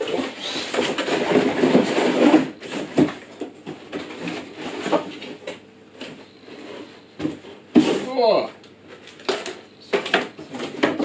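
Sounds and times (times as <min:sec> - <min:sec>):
contents scraping inside cardboard box: 0:00.0 - 0:03.3.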